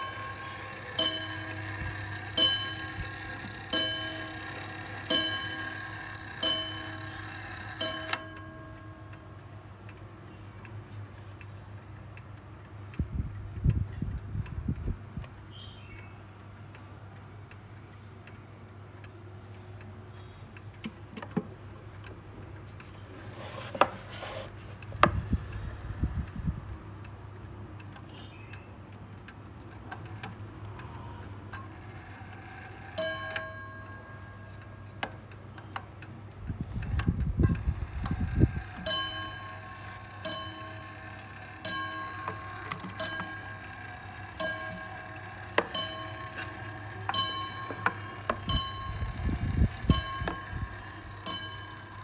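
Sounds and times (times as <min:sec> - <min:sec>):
clock gong strikes: 0:00.0 - 0:09.1, 0:38.8 - 0:52.0
clock ticking: 0:00.0 - 0:10.8, 0:31.5 - 0:52.0.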